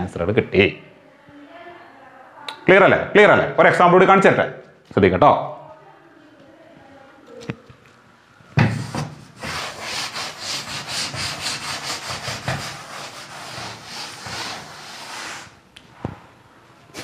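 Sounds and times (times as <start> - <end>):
cloth rubbing on blackboard: 8.7 - 15.6.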